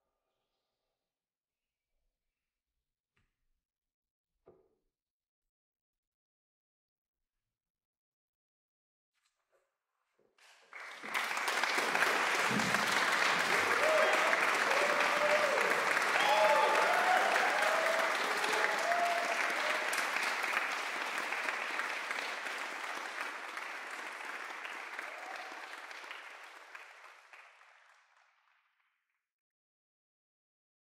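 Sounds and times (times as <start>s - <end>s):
audience applauding: 10.5s - 28.6s.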